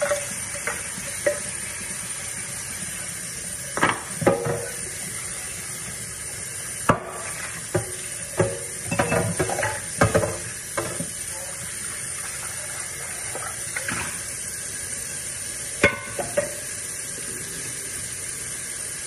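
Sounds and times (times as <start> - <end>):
pots and pans clattering: 0.0 - 1.8, 3.7 - 5.2, 6.8 - 11.6, 12.2 - 14.4, 15.8 - 16.7
food sizzling in a pan: 0.0 - 19.0.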